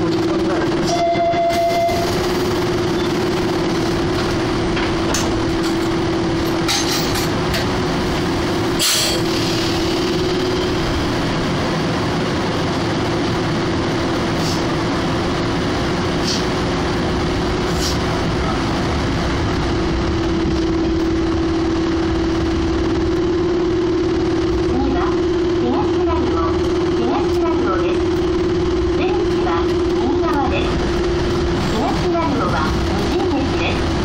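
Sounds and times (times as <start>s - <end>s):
train electrical hum: 0.0s - 34.0s.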